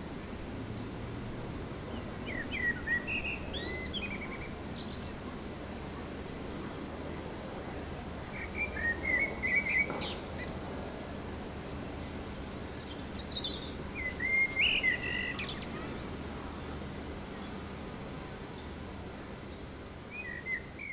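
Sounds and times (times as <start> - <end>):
songbird singing: 1.9 - 5.3, 8.3 - 10.9, 12.5 - 16.1, 19.4 - 20.9.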